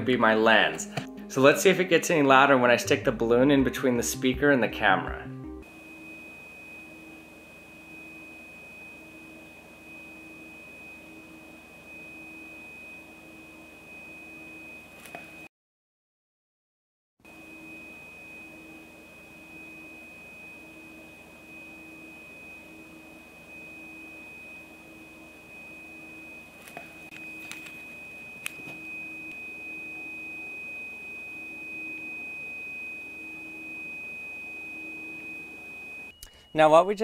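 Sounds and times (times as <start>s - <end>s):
high test tone from a small speaker: 0.6s - 15.5s, 17.3s - 37.0s
clicks: 26.6s - 27.8s.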